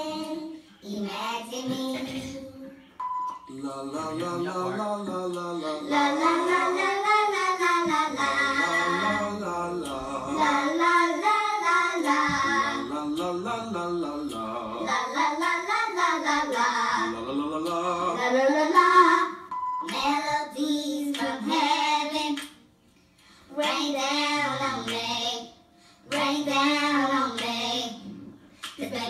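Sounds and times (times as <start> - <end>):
woman singing: 3.9 - 13.0.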